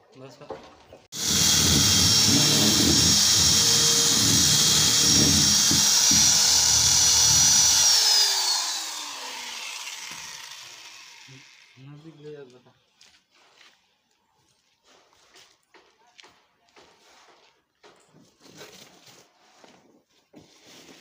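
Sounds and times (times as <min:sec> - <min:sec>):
electric drill boring into plastic: 0:01.2 - 0:11.8.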